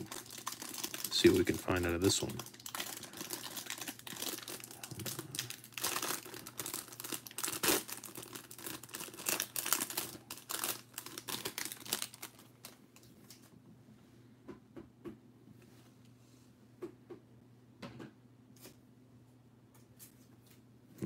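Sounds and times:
plastic wrapper crinkling: 0.0 - 13.5.

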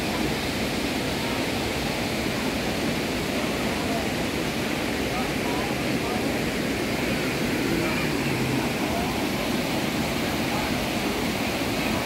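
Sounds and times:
faint voices: 0.0 - 12.0
waterfall and river rushing: 0.0 - 12.0.

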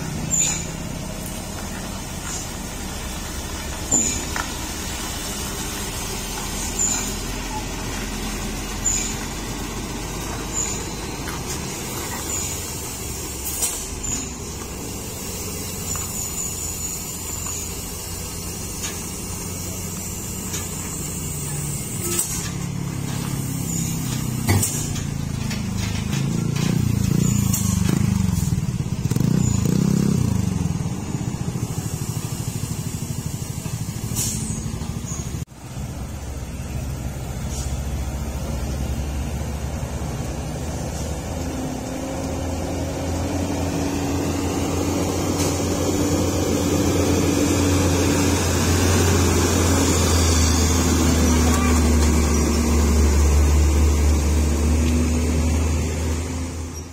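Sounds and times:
truck diesel engine under load: 0.0 - 56.9
air brake hisses: 31.8 - 34.8, 37.4 - 37.8.

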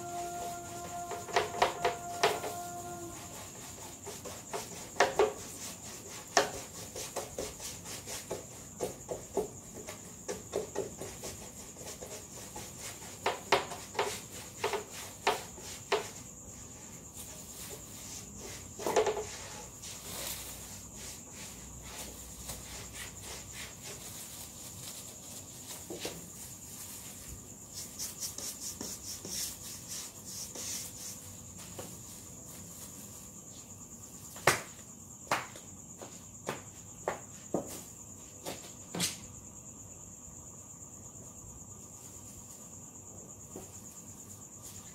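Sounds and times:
crickets chirping: 0.0 - 44.9
gloved hand rubbing on wood: 27.0 - 31.4
sharp knocks and slaps: 34.4 - 35.7.

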